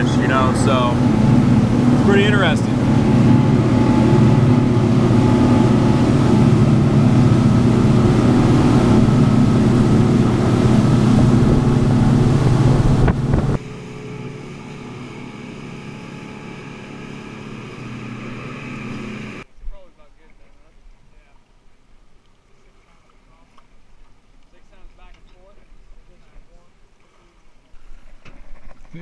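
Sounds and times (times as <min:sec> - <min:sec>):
rushing water: 0:00.0 - 0:19.4
boat motor hum: 0:00.0 - 0:19.5
wind: 0:00.0 - 0:29.0.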